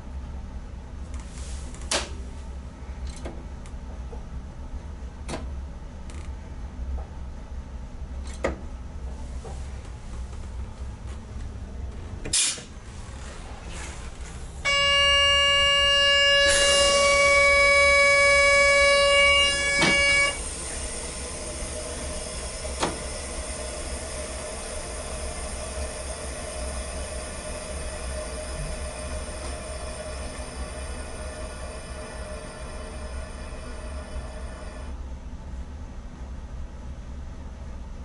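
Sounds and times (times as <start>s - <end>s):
train running noise in cab: 0.0s - 35.3s
train horn: 14.6s - 20.6s.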